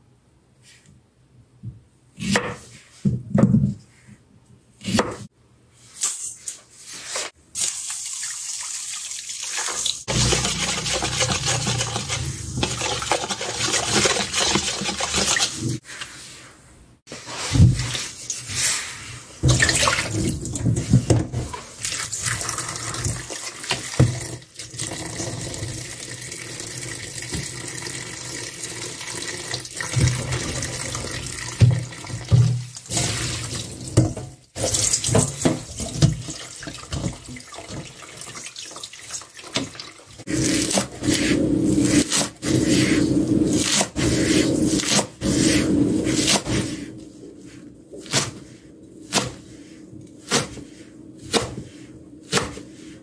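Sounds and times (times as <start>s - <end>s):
tap water running into bowl: 7.6s - 15.6s
water splashing: 7.6s - 15.8s.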